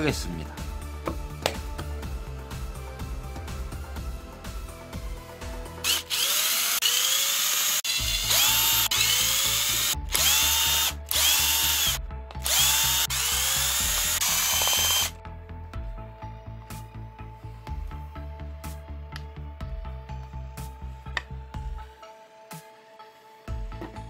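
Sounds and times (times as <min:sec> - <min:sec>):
background music: 0:00.0 - 0:24.0
cordless drill whirring: 0:05.8 - 0:15.1.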